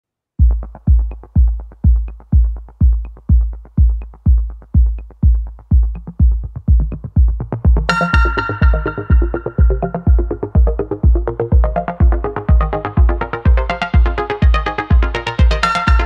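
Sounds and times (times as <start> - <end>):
electronic music kick-drum beat: 0.4 - 16.0
synth chords: 0.4 - 16.0.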